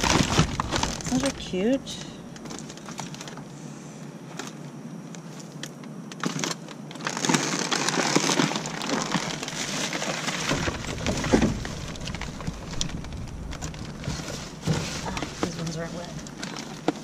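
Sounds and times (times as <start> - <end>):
plastic bags rustling: 0.0 - 17.0.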